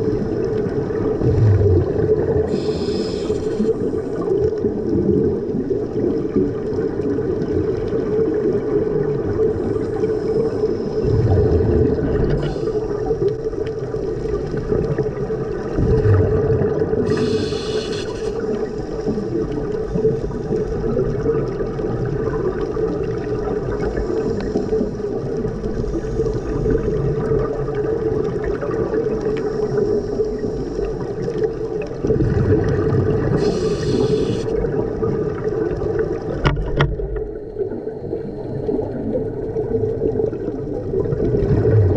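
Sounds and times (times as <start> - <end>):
diver's bubbles gurgling: 0.0 - 41.9
underwater drone: 0.0 - 41.9
short hisses: 2.5 - 4.0, 17.1 - 18.4, 33.4 - 34.5.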